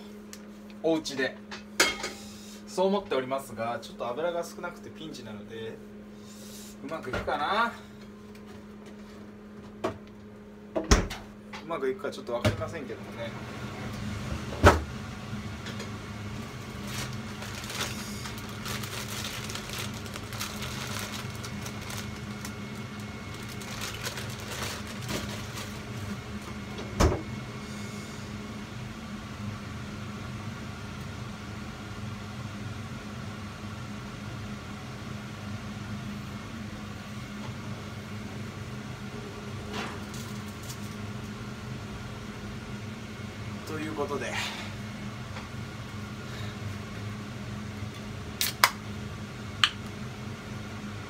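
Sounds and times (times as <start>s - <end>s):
kitchen appliance humming: 12.4s - 51.0s.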